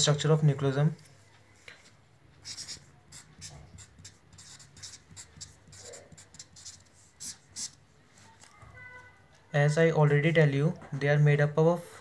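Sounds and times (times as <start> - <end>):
marker scratching on paper: 2.4 - 7.8.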